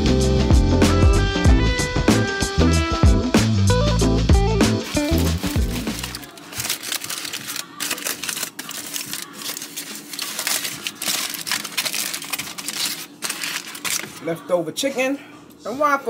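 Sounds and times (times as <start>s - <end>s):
aluminium foil crinkling: 4.8s - 14.5s.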